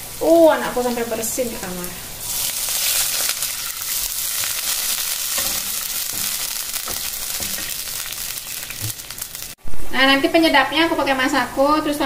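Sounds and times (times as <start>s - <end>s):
hot oil sizzling in a wok: 0.0s - 9.6s
spatula stirring: 2.2s - 9.6s.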